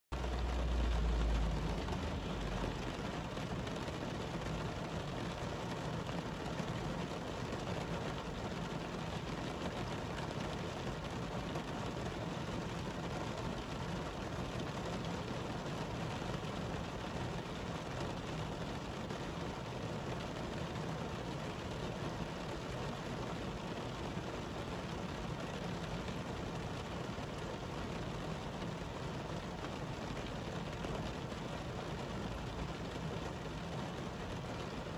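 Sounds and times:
low rumble: 0.2 - 3.0.

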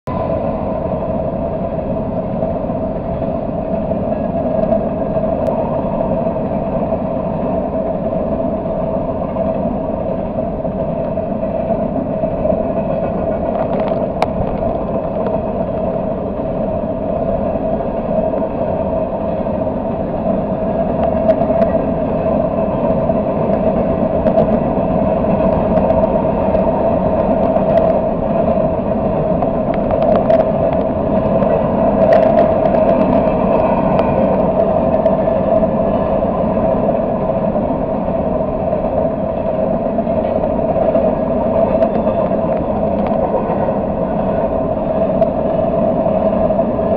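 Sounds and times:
freight train wheels rumbling on rail: 0.0 - 46.9.

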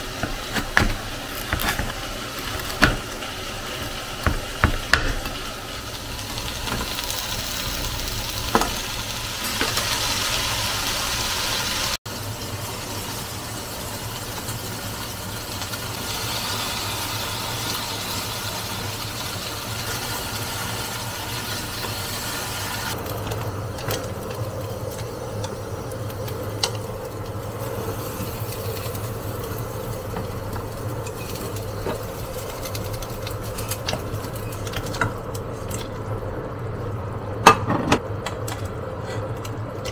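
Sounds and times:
kitchen clatter: 37.4 - 39.9.

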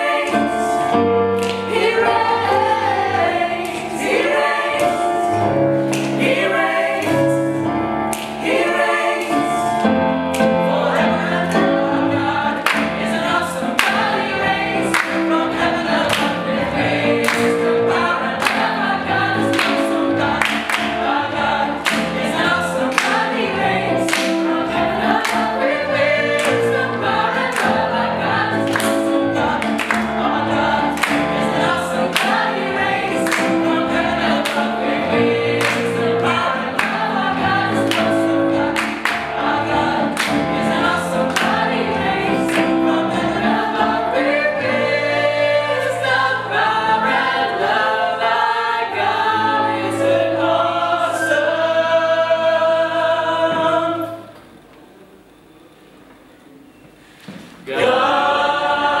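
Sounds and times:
gospel choir singing: 0.0 - 54.5, 57.3 - 59.0
keyboard accompaniment: 0.0 - 59.0
people clapping on the beat: 1.4 - 1.9, 5.8 - 7.3, 12.6 - 23.4, 24.0 - 28.0, 28.6 - 34.9, 35.5 - 41.8, 42.4 - 43.0.

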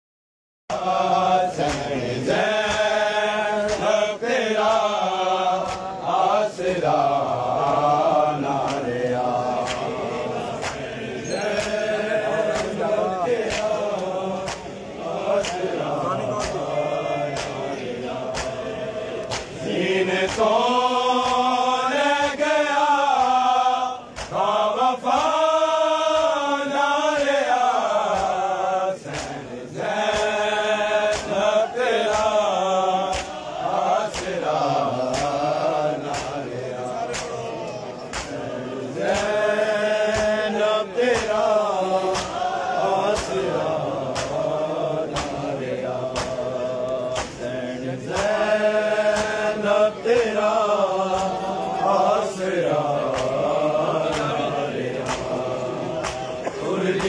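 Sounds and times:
crowd of men chanting: 0.7 - 57.0
hands slapping chest: 1.6 - 2.0, 5.6 - 5.9, 8.6 - 9.0, 9.6 - 10.0, 10.6 - 10.9, 12.5 - 14.7, 15.4 - 16.7, 17.3 - 17.7, 18.3 - 18.6, 19.2 - 19.6, 21.2 - 21.5, 24.1 - 24.5, 29.1 - 29.4, 30.0 - 30.4, 31.0 - 31.4, 32.0 - 32.4, 33.0 - 33.4, 34.1 - 35.4, 36.0 - 37.4, 38.0 - 39.4, 40.1 - 40.5, 42.1 - 42.4, 44.1 - 44.5, 45.1 - 45.5, 46.1 - 46.5, 47.1 - 47.5, 48.1 - 49.4, 53.0 - 53.5, 54.1 - 54.4, 55.0 - 57.0.

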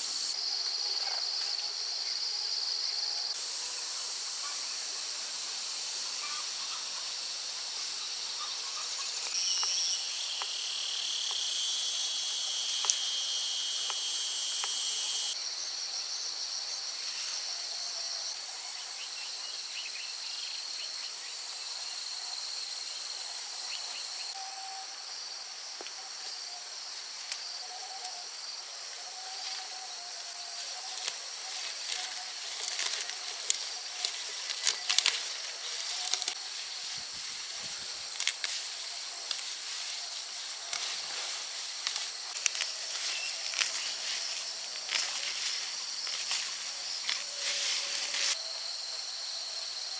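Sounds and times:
insects buzzing high pitch: 0.0 - 0.4, 9.3 - 15.4
loud insect buzzing: 0.0 - 0.4, 9.3 - 15.4.

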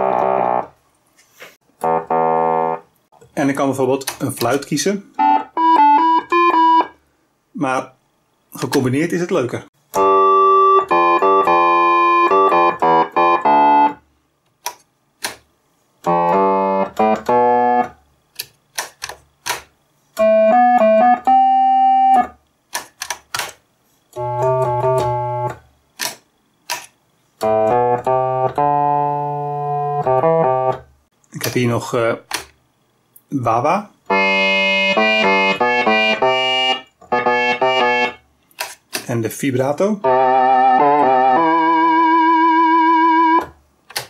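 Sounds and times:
electronic organ playing: 0.0 - 0.8, 1.8 - 2.9, 5.1 - 7.0, 9.9 - 14.0, 16.0 - 18.0, 20.2 - 22.4, 24.2 - 25.6, 27.4 - 30.9, 34.1 - 38.2, 40.0 - 43.5.

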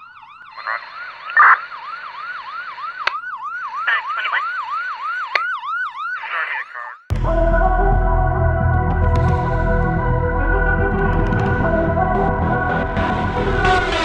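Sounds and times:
siren on fast yelp: 0.0 - 7.0
music with heavy bass: 7.1 - 14.0
sharp hits: 7.1 - 14.0.

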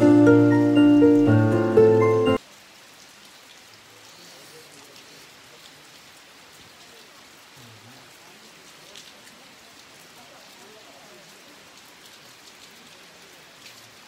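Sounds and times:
background music: 0.0 - 2.4
rain falling: 0.0 - 14.0.

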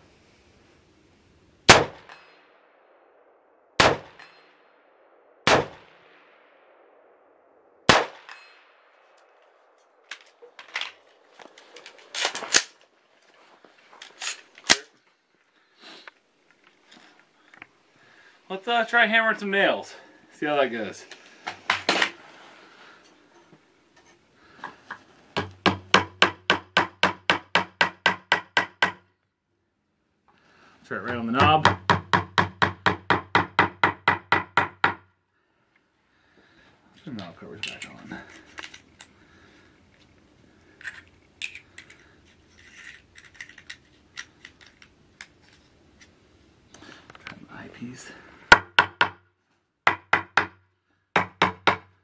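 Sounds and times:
hammering nail into wooden board: 25.4 - 29.0, 31.4 - 35.0, 48.5 - 49.2, 49.9 - 50.6, 51.2 - 51.9.

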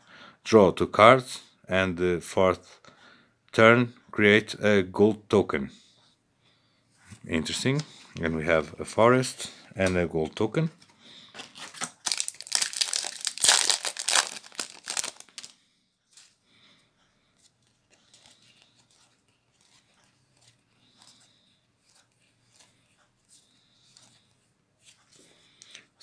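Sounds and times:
soft clicks of cards handled: 7.1 - 8.3, 21.8 - 26.0
plastic wrapper tearing and crinkling: 11.4 - 15.6.

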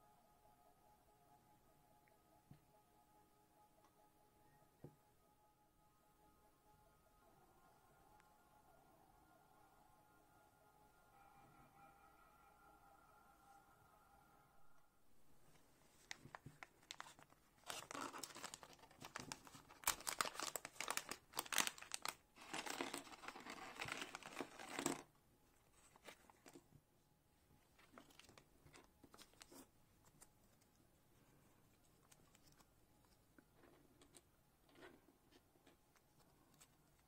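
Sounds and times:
plastic bag crinkling and tearing: 16.0 - 25.1.

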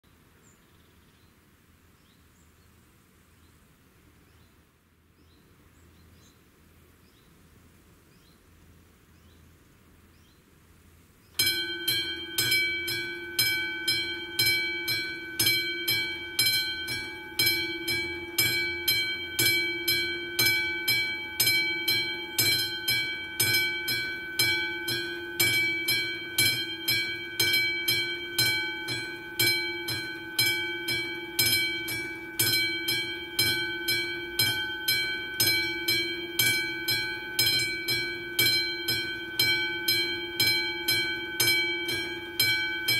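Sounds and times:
level crossing warning bell: 11.4 - 42.9.

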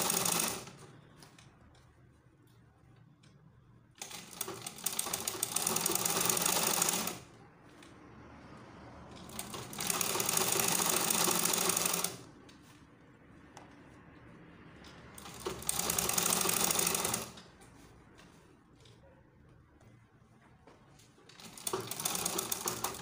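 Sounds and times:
sewing machine stitching: 0.0 - 0.9, 4.0 - 7.3, 9.1 - 12.3, 15.2 - 17.5, 21.3 - 23.0.

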